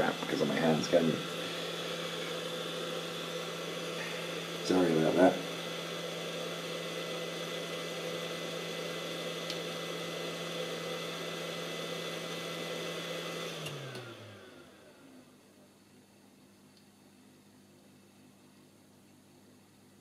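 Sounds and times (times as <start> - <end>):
hot air gun fan humming: 0.0 - 15.1.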